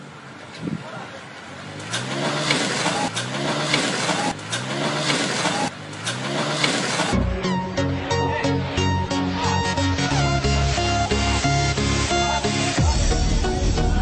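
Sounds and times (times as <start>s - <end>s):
motorcycle engine revving: 1.6s - 7.3s
plucked guitar music: 7.1s - 12.9s.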